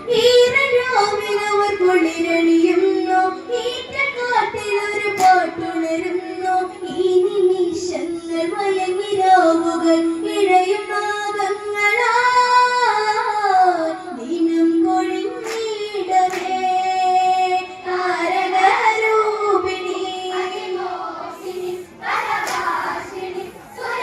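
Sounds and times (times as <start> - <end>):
girl singing into a microphone: 0.0 - 24.0.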